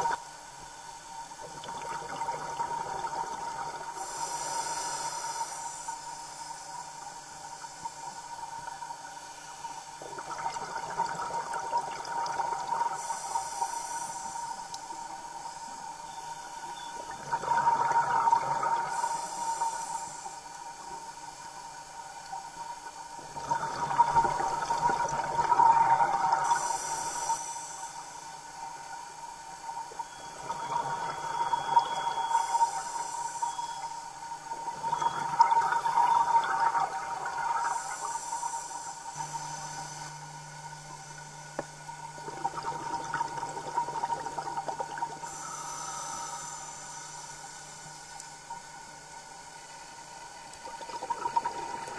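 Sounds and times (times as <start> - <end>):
steady thin whine: 0.0 - 51.9
exhaled bubbles gurgling: 1.4 - 5.8, 10.0 - 15.6, 16.7 - 20.8, 22.8 - 27.5, 29.6 - 49.6, 50.3 - 51.9
regulator inhale hiss: 3.8 - 10.3, 12.6 - 17.6, 18.7 - 30.4, 31.0 - 34.8, 37.2 - 50.2.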